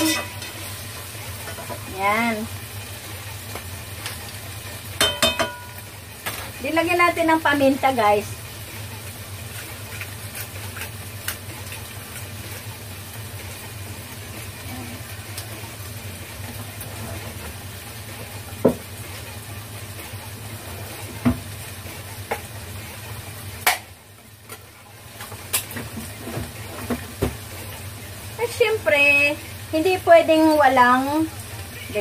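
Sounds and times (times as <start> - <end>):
food sizzling in a pot: 0.0 - 32.0.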